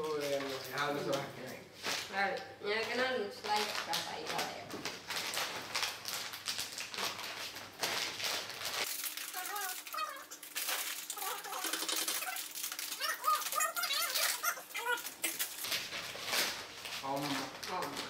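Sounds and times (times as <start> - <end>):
plastic packet crinkling: 3.4 - 18.0
high wavering voice-like sounds: 11.1 - 15.4.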